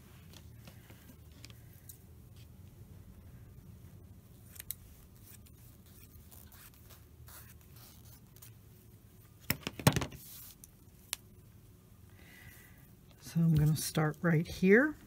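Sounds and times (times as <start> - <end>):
fabric rustling: 0.0 - 9.4.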